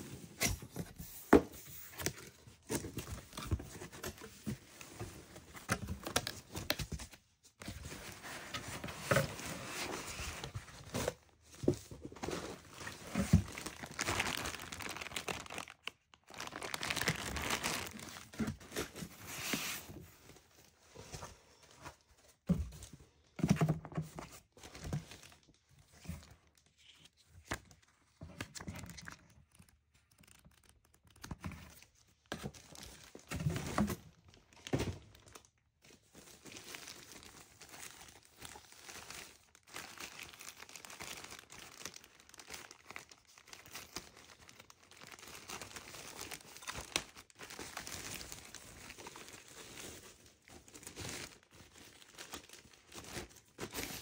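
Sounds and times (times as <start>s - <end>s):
plastic packaging crinkling: 12.1s - 19.7s, 28.5s - 33.4s, 34.3s - 54.0s.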